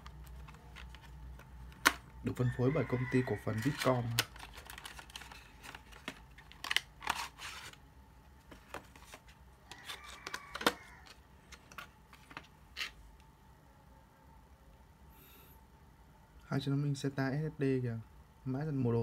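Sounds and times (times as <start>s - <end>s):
plastic packaging clicks and crinkles: 0.0s - 2.2s, 3.5s - 7.8s, 8.5s - 13.0s.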